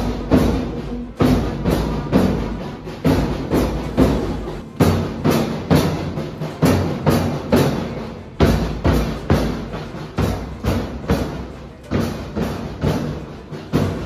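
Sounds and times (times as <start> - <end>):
marching drums beating: 0.0 - 14.0.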